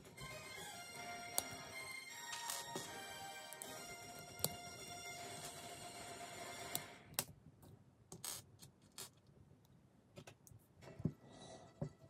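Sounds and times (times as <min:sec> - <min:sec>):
background music: 0:00.0 - 0:07.2.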